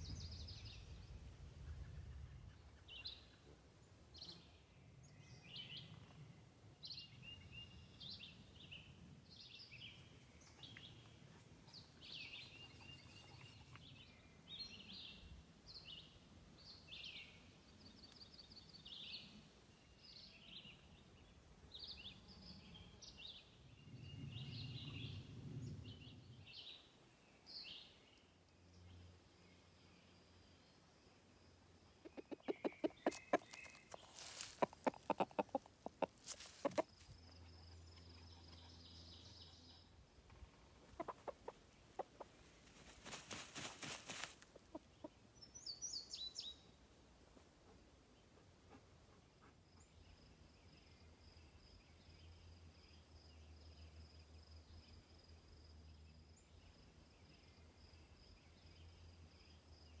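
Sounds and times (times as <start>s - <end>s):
chickens clucking: 32.0s - 37.1s, 40.8s - 43.2s, 43.8s - 45.2s.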